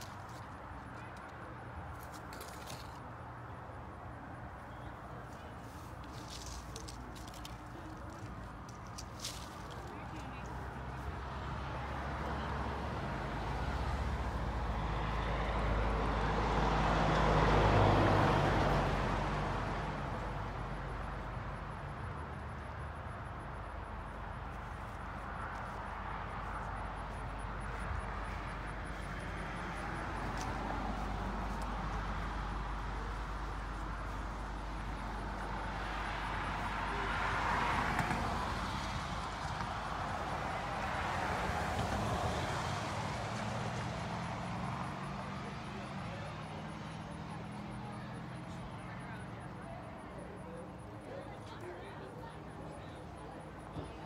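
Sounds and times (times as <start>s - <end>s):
cars passing on road: 0.0s - 54.0s.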